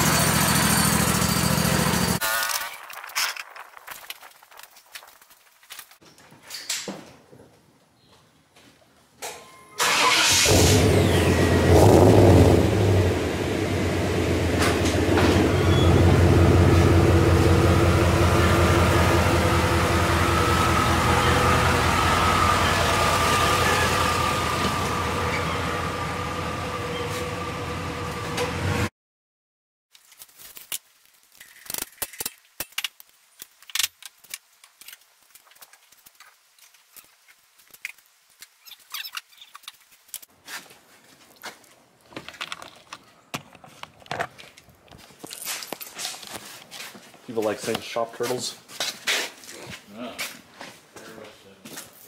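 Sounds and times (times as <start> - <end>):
truck engine revving and idling: 0.0 - 2.2, 10.2 - 28.9.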